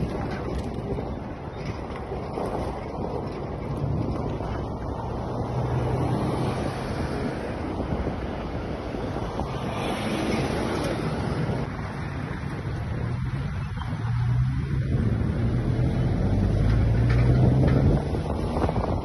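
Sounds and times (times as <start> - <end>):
wind rumble on microphone: 0.0 - 19.0
vehicle engine drone: 8.6 - 19.0.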